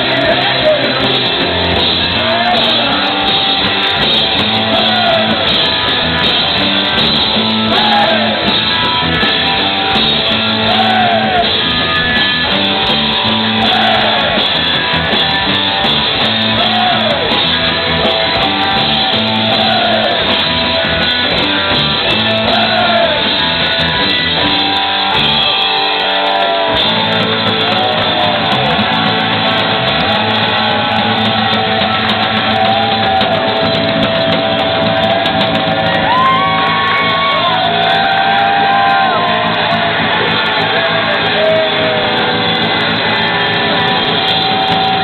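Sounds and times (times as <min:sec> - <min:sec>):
garage rock band playing: 0:00.0 - 0:45.0
shouted vocals: 0:07.7 - 0:08.5, 0:10.6 - 0:11.6, 0:13.4 - 0:14.4, 0:18.4 - 0:20.3, 0:22.1 - 0:23.4.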